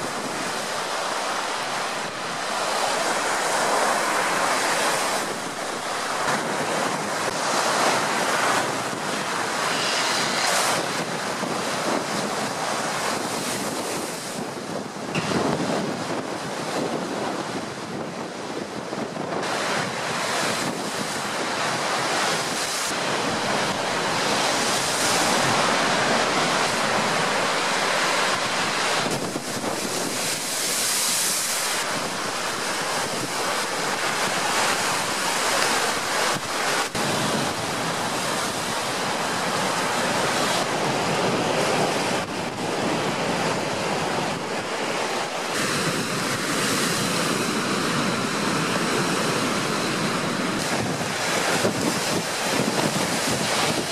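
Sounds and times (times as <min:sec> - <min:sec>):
storm wind gusting: 0:00.0 - 0:53.9
waves breaking against shore: 0:00.0 - 0:53.9
wind buffeting microphone: 0:00.0 - 0:53.9.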